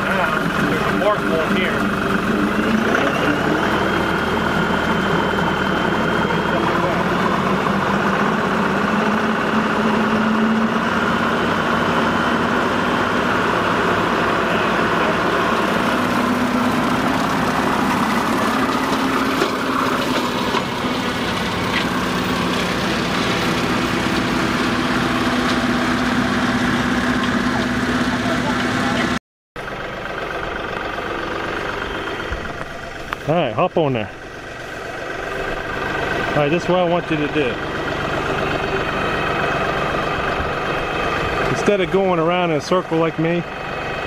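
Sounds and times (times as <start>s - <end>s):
tractor diesel engine under load: 0.0s - 44.0s
rotary cutter through grass: 14.4s - 26.3s.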